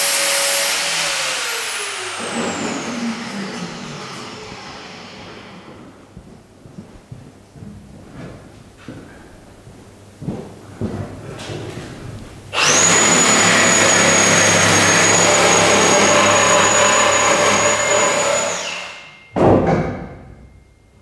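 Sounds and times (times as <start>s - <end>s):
power tool whining: 0.0s - 6.0s, 12.5s - 19.3s
loud metal clank: 18.9s - 20.6s.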